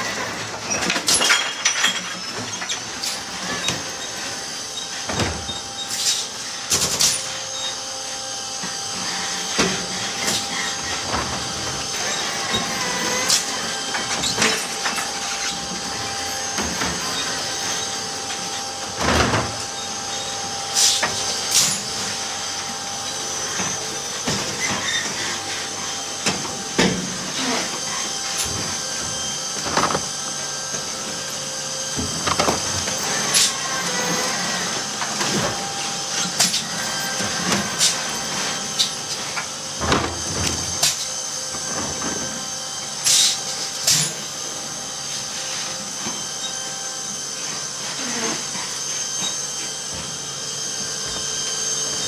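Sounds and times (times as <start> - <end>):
electric motor whine: 2.3 - 52.0.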